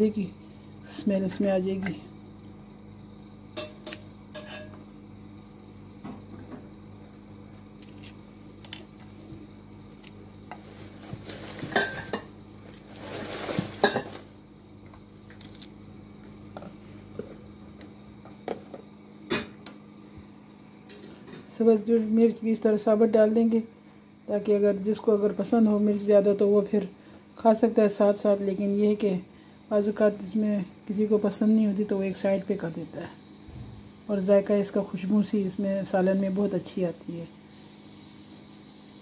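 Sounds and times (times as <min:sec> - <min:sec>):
scraping and rustling: 0:10.5 - 0:14.4.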